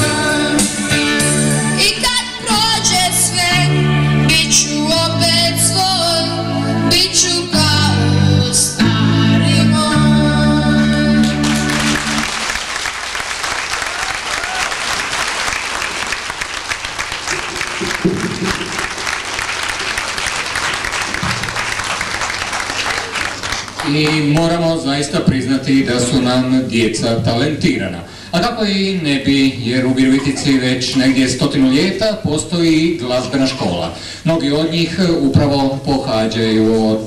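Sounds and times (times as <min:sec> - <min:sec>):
boy singing pop song with band: 0:00.0 - 0:11.5
audience applauding: 0:11.2 - 0:24.6.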